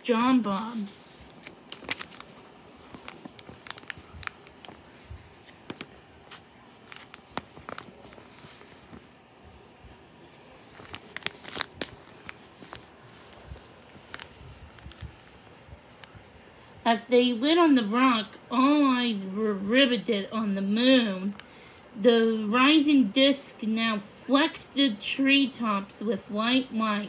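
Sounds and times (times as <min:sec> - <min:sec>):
book pages rustling: 0:00.0 - 0:16.4.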